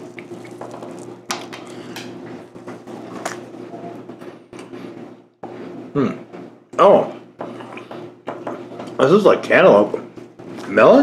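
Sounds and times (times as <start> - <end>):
biscuit crackles and clicks: 0.0 - 3.5
steady low hum: 0.0 - 11.0.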